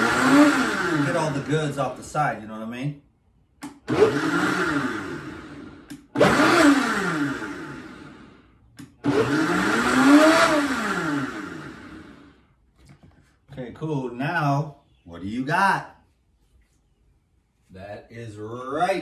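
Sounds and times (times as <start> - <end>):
blender motor: 0.0 - 1.8, 3.6 - 12.4
blender switch click: 3.6 - 3.9, 5.8 - 6.1, 8.8 - 9.0.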